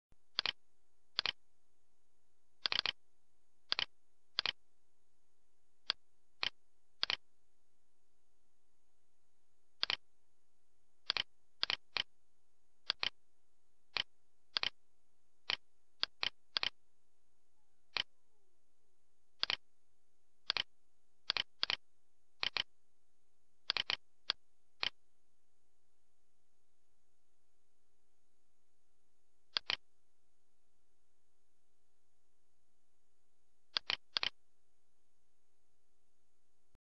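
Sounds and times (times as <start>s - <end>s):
faint steady hum: 0.1s - 36.8s
computer mouse button clicking: 1.2s - 1.4s, 20.5s - 20.7s, 21.3s - 21.8s, 22.4s - 22.7s, 23.7s - 24.0s, 29.6s - 29.8s, 33.8s - 34.4s
mouse button clicks: 29.5s - 29.8s.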